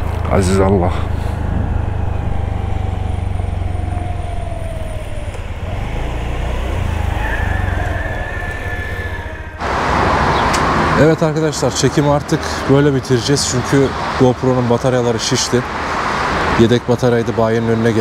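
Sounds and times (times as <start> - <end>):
low wind rumble: 0.0 - 16.1
distant call to prayer: 0.2 - 12.8.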